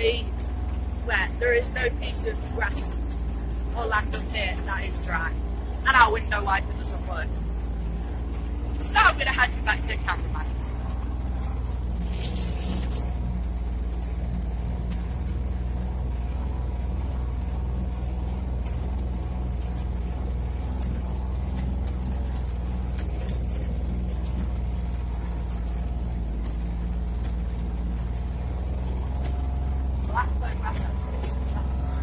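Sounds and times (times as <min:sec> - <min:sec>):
light clicks and rattles: 0:00.0 - 0:32.0
vehicle engine droning: 0:00.0 - 0:32.0
brief hiss: 0:12.0 - 0:13.1.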